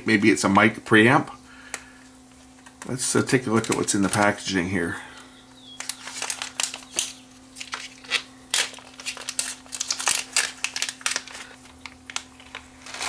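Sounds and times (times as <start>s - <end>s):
faint steady hum: 0.0s - 13.0s
plastic bag crinkling: 3.3s - 4.5s, 5.8s - 13.0s.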